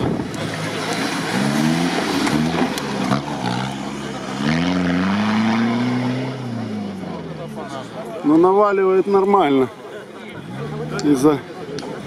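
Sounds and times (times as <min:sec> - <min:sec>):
engine revving hard: 0:00.7 - 0:06.9.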